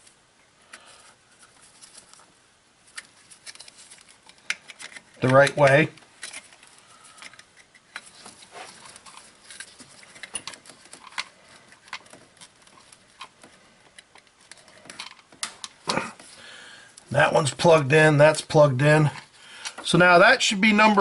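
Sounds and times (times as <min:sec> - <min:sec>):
small clicks and rustles: 0:00.0 - 0:17.1.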